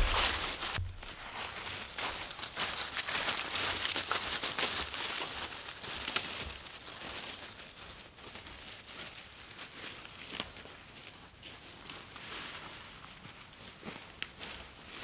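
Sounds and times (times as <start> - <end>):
dog rustling through leaves: 0.0 - 10.8
footsteps crunching dry leaves: 0.0 - 15.0.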